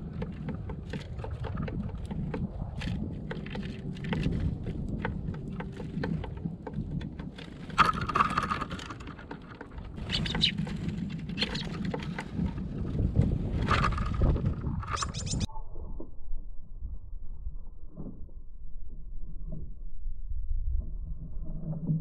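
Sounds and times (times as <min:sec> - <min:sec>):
birds pecking at feeder tray: 0:00.0 - 0:15.5
low steady rumble: 0:00.0 - 0:22.0.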